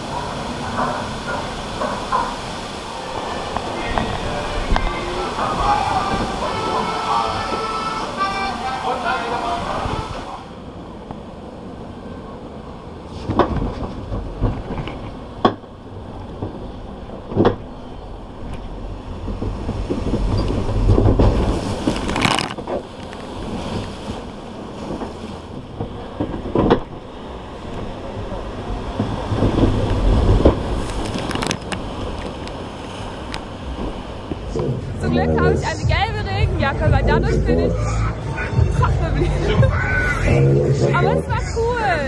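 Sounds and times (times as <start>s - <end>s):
log flume boat rumbling: 0.0s - 42.0s
rush of noise: 0.0s - 42.0s
knocks and clunks: 13.2s - 17.7s, 18.5s - 27.1s.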